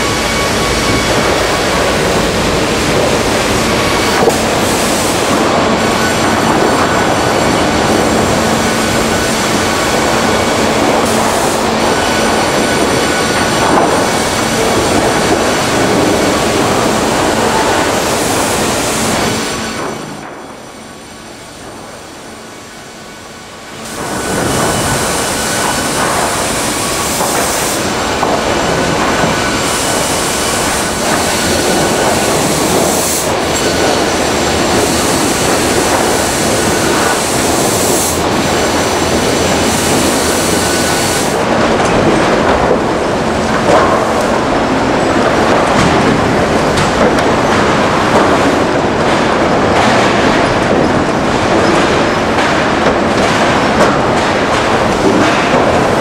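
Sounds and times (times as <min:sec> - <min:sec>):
timber profiling machine running: 0:00.0 - 0:56.0
timber profiling machine cutting: 0:23.8 - 0:41.5.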